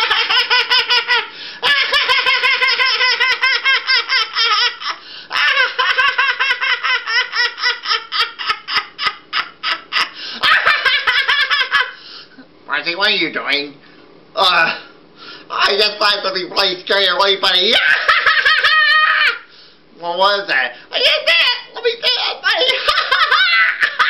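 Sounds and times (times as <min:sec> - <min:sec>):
high-pitched cartoonish laughter: 0:00.0 - 0:11.9, 0:17.8 - 0:19.4, 0:21.0 - 0:24.0.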